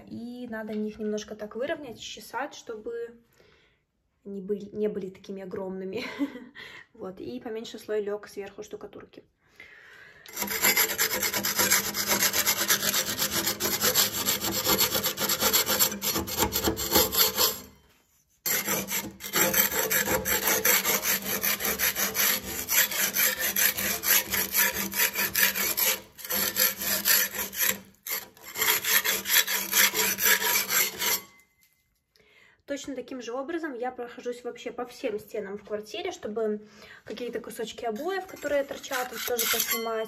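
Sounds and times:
putty knife scraping adhesive: 0:10.3 - 0:31.4, 0:37.9 - 0:40.0.

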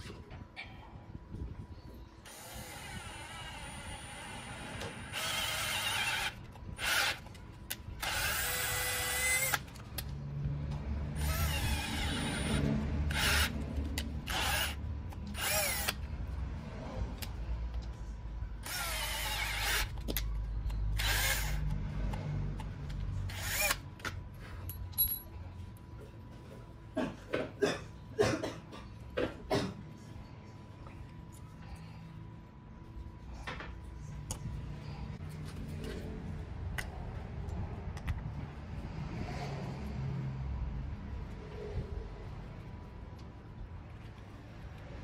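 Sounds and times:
electric drill whining: 0:02.3 - 0:07.3, 0:08.0 - 0:09.7, 0:11.2 - 0:13.6, 0:14.2 - 0:14.8, 0:15.4 - 0:16.0, 0:18.6 - 0:20.0, 0:21.0 - 0:21.7, 0:23.3 - 0:23.8.

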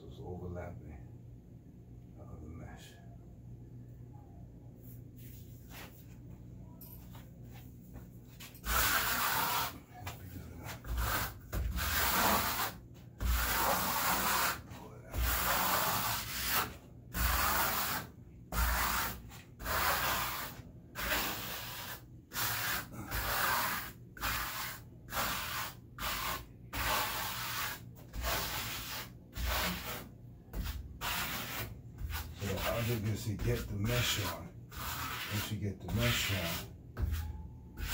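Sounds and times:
trowel scraping wet cement: 0:08.6 - 0:09.8.

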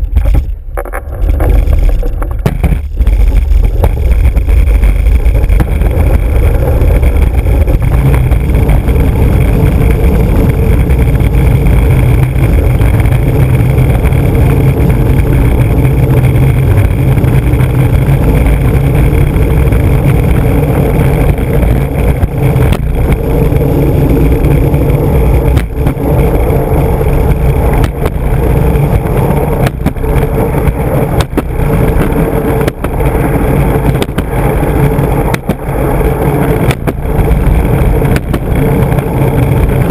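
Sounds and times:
skateboard wheels rumbling on asphalt: 0:00.0 - 0:39.9
sharp knocks: 0:02.3 - 0:03.1.

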